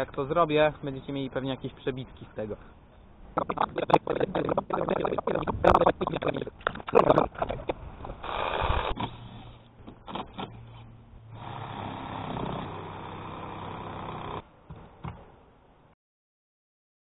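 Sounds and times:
cordless drill motor running: 8.2 - 9.0, 11.4 - 14.4.

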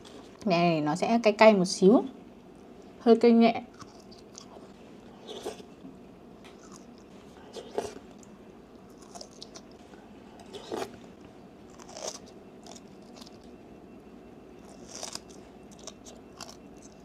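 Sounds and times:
crunchy chewing: 3.7 - 5.7, 6.4 - 13.6, 14.6 - 17.0.

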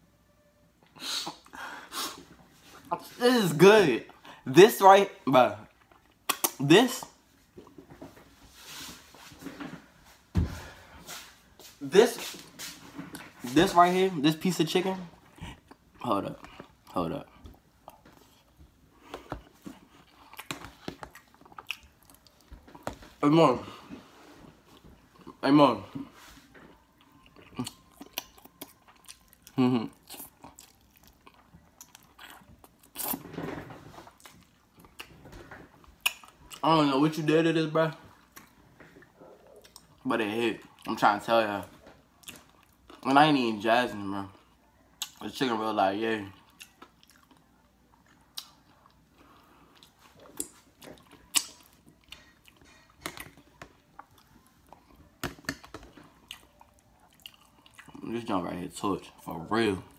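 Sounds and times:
wet mouth clicks and smacks: 6.0 - 6.6
person chewing chicken: 17.8 - 23.0, 26.7 - 33.2, 46.4 - 58.0.

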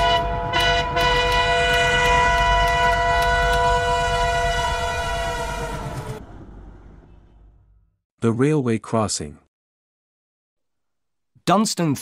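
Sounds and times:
train horn: 0.0 - 6.2
low rumble: 1.9 - 8.0.

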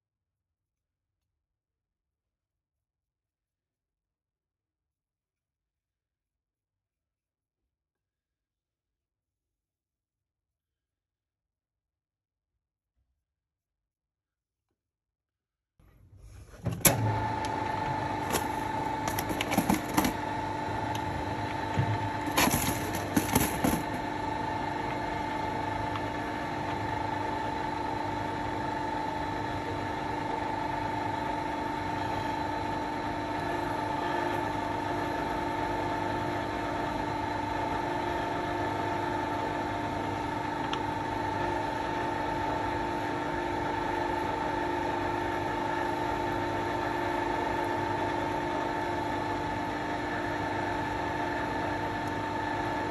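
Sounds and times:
metal lathe humming and whining: 16.8 - 52.9
plastic tray clattering: 18.2 - 20.2, 21.8 - 24.0.

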